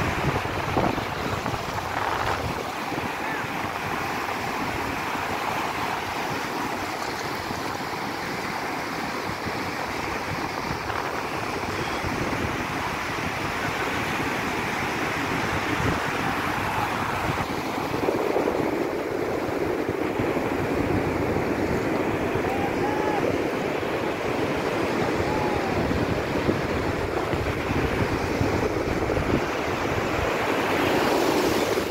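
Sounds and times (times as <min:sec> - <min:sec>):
waves breaking on a beach: 0:00.0 - 0:31.9.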